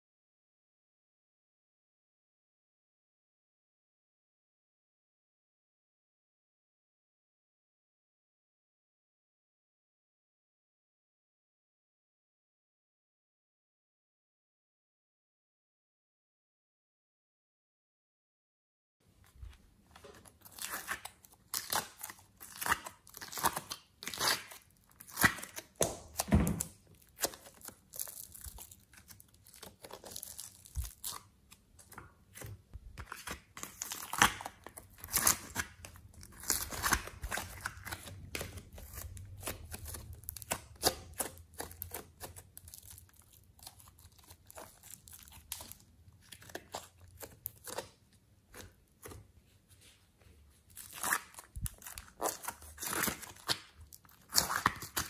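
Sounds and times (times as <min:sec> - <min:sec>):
clay squishing and tearing: 0:19.4 - 0:49.4, 0:50.6 - 0:55.0.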